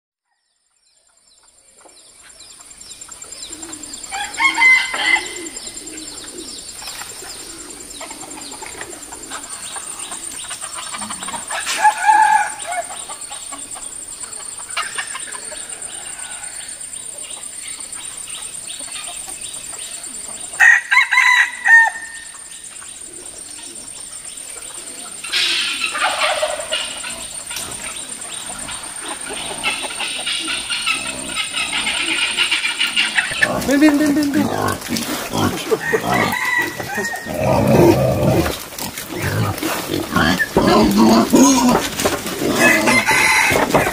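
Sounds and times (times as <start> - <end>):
roosters crowing: 3.5 - 6.5, 7.4 - 13.8, 14.7 - 16.9, 20.4 - 22.5, 25.2 - 43.9.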